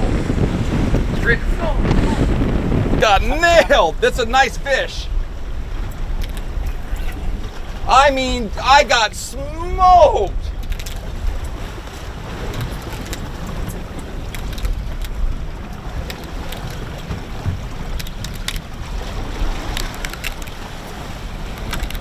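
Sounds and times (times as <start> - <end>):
low rumble: 0.0 - 8.7
waves washing against hull: 0.0 - 22.0
wind buffeting microphone: 0.0 - 22.0
sharp clicks: 6.0 - 6.5, 19.7 - 20.6.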